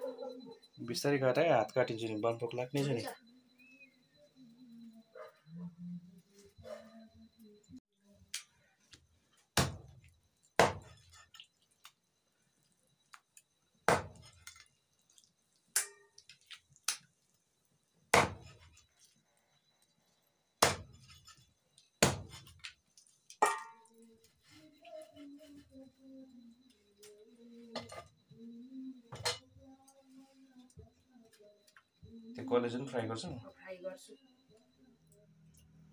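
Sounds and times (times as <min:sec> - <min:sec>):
knife chopping on wooden block: 0:10.6 - 0:11.0, 0:13.9 - 0:14.2, 0:18.1 - 0:18.6, 0:20.6 - 0:21.0.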